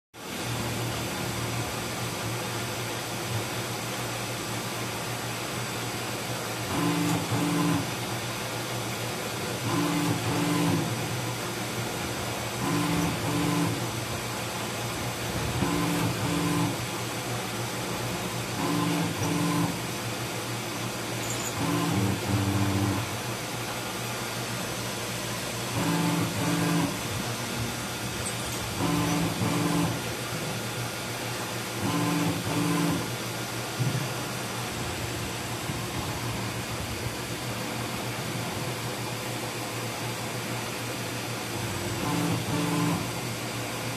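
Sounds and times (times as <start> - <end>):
spindle and drill humming: 12.6 - 14.0, 21.2 - 23.2, 25.6 - 30.1.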